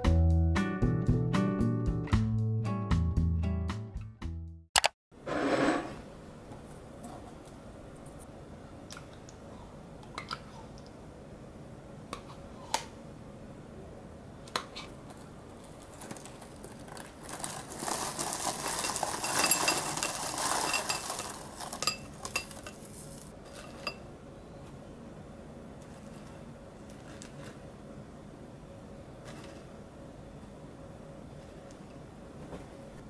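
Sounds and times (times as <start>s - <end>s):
cereal rattling into ceramic bowl: 15.9s - 24.0s.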